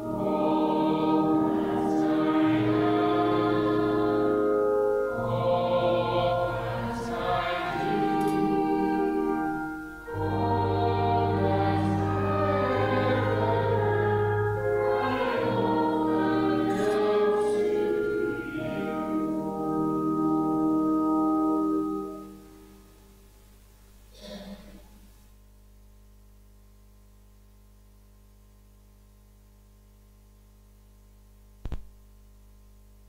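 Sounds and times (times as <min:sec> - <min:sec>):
group singing a hymn: 0:00.0 - 0:19.9
held chords: 0:00.0 - 0:23.3.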